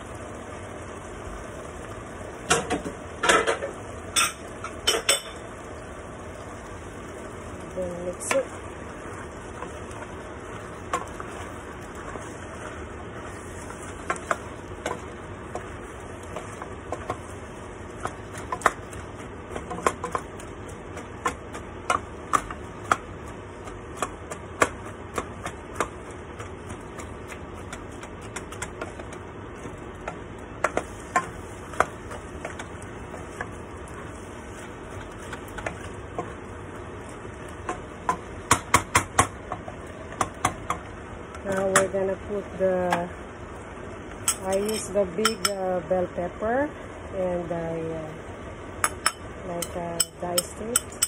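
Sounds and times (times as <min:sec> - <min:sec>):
food sizzling in a pot: 0:00.0 - 0:51.0
spoon tapping on a pot: 0:37.6 - 0:39.6, 0:44.3 - 0:45.6, 0:48.8 - 0:51.0.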